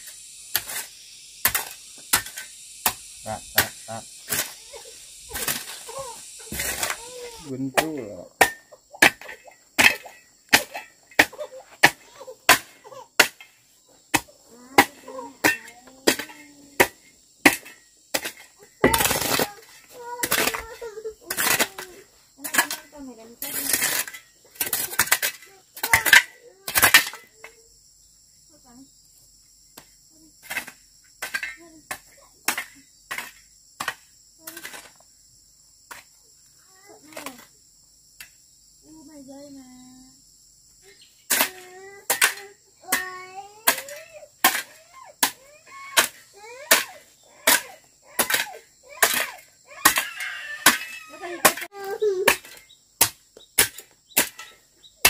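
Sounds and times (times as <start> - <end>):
hoe scraping sandy soil: 0.0 - 7.6, 17.5 - 25.5
insects droning: 0.0 - 55.0
hoe chopping hard dirt: 0.5 - 13.5, 14.1 - 22.8, 41.3 - 54.6
child's voice: 6.8 - 7.5, 14.5 - 16.8, 18.8 - 23.8, 24.9 - 27.7, 31.6 - 31.9, 36.7 - 37.5, 38.8 - 40.2, 40.8 - 52.4.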